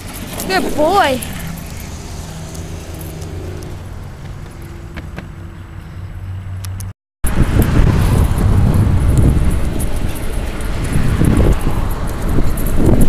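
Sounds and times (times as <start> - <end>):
road traffic hum: 0.0 - 13.0
wind buffeting microphone: 7.2 - 13.0.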